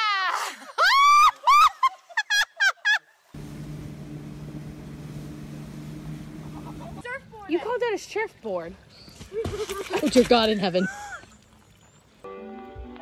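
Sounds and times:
wind and water hiss: 3.1 - 9.2
boat engine drone: 3.4 - 7.0.

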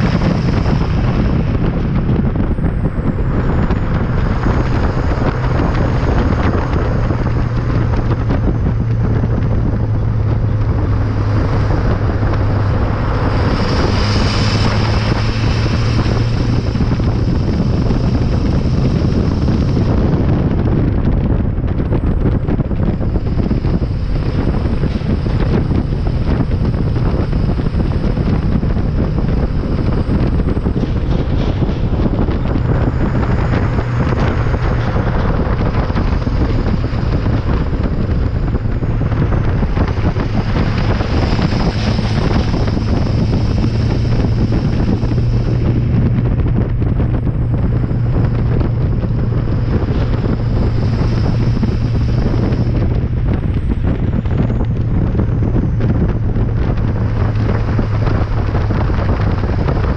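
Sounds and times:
diesel truck exhaust drone: 0.0 - 59.9
wind on microphone: 0.0 - 59.9.

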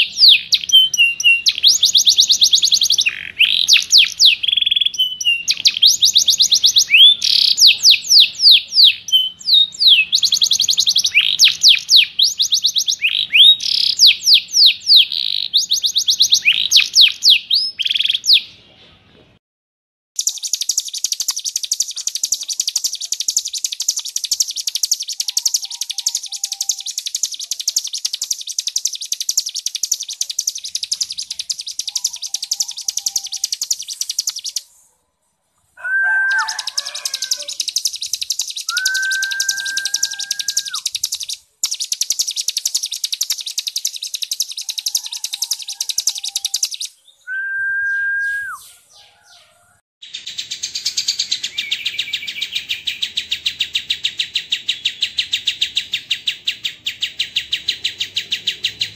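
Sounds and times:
fast high chattering bird trill: 0.0 - 18.4, 20.2 - 34.6, 36.0 - 46.9
down-sweeping whistled bird notes: 35.8 - 41.2, 41.8 - 48.8.

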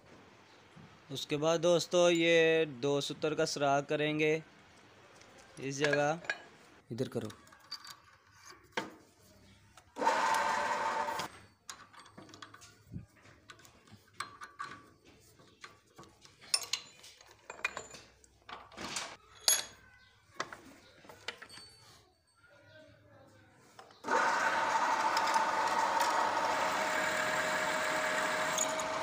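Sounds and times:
metal clinks and knocks: 5.7 - 6.6, 7.2 - 8.8, 11.3 - 22.5.

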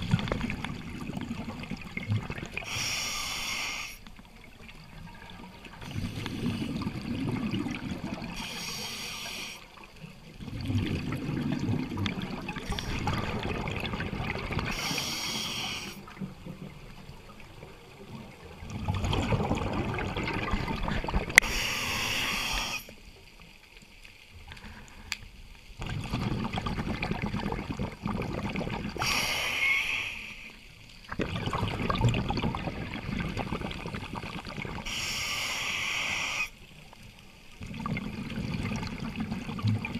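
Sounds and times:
regulator air hiss: 2.6 - 4.0, 8.4 - 9.7, 14.7 - 16.0, 21.4 - 23.0, 29.0 - 30.6, 34.8 - 36.6
exhaust bubbling underwater: 5.6 - 8.4, 10.4 - 14.8, 16.0 - 21.5, 25.8 - 29.2, 31.1 - 34.9, 37.6 - 39.9.

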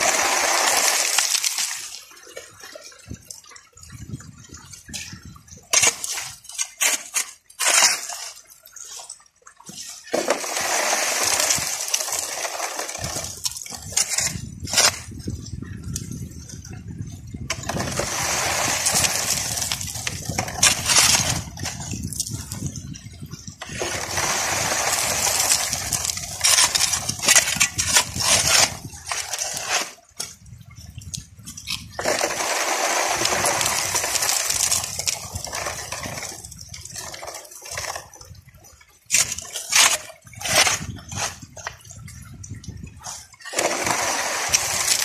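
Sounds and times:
shovel scraping gravel: 0.0 - 2.0, 5.7 - 9.1, 9.7 - 15.2, 17.5 - 22.6, 23.6 - 30.2, 31.7 - 38.0, 39.1 - 41.6, 43.0 - 45.0
rushing water: 0.0 - 45.0.

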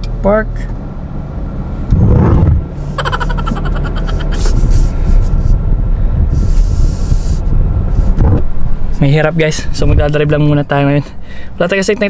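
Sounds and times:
car cabin rumble: 1.8 - 10.9.

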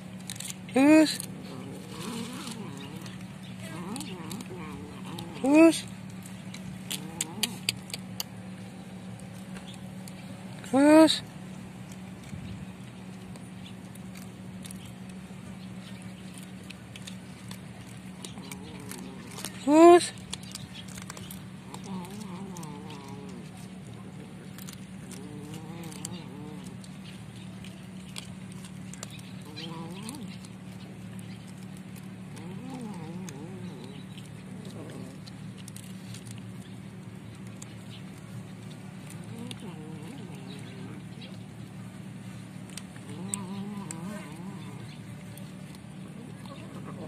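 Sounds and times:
cats chewing and crunching food: 0.0 - 47.0
steady low hum: 0.0 - 47.0
cat growling yowl: 0.8 - 5.9, 6.9 - 7.8, 18.2 - 20.2, 21.7 - 26.8, 29.4 - 30.5, 32.3 - 35.3, 39.1 - 41.2, 43.0 - 44.9, 46.1 - 47.0.

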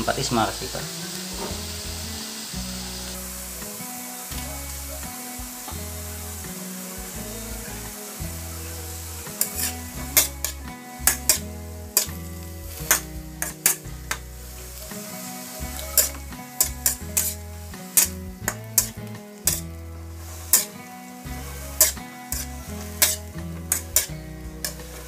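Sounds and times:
meat sizzling: 0.0 - 25.0
metal spatula scraping a wok: 8.0 - 25.0.

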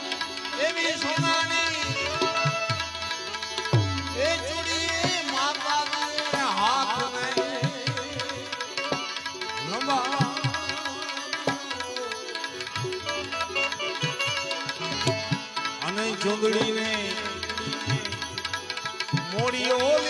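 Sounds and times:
harmonium: 0.0 - 20.0
ornamented lead melody: 0.0 - 20.0
hand drum beat: 3.6 - 12.1.

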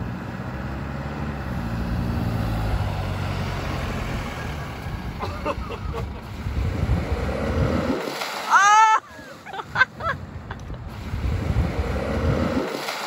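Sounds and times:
pickup truck engine driving past: 0.0 - 8.0.

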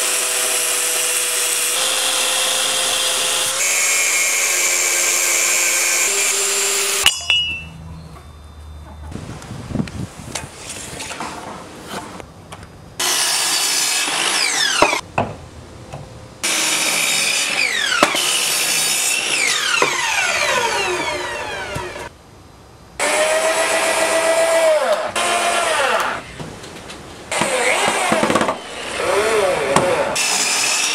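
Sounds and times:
mitre saw cutting timber: 0.0 - 7.0, 13.0 - 15.0, 16.4 - 22.1, 23.0 - 26.4, 27.3 - 30.9
power drill driving into timber: 19.3 - 22.1, 27.3 - 28.8.

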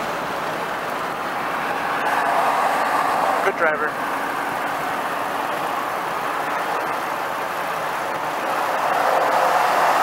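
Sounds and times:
vehicle road noise from cabin: 0.0 - 10.0.

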